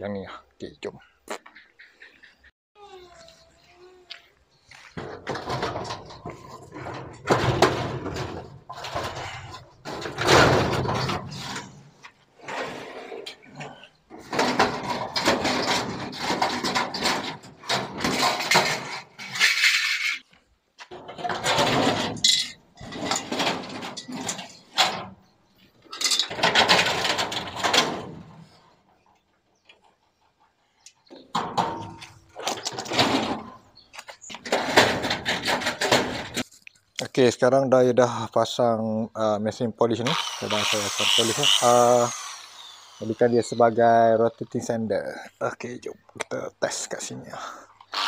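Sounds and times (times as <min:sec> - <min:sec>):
metal drawers scraping and rattling: 0:05.0 - 0:20.2, 0:20.9 - 0:25.2, 0:25.9 - 0:28.4, 0:31.3 - 0:33.7, 0:34.4 - 0:36.4.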